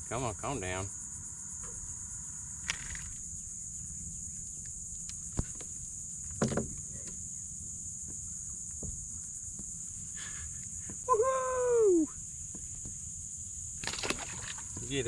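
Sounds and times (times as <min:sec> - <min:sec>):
insect chorus: 0:00.0 - 0:15.0
rustle: 0:12.0 - 0:15.0.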